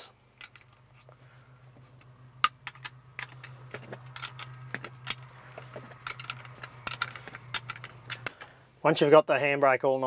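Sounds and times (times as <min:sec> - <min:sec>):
spanner clinking on metal: 0:02.4 - 0:08.4.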